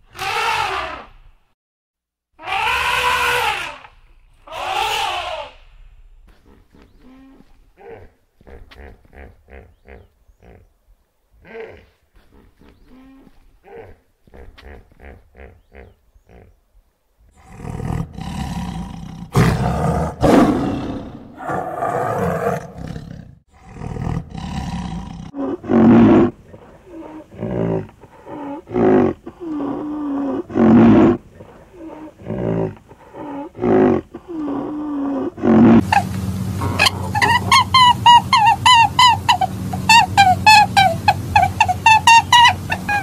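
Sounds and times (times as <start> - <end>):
large animal calling loudly: 0.1 - 1.1, 2.4 - 5.7, 35.3 - 43.0.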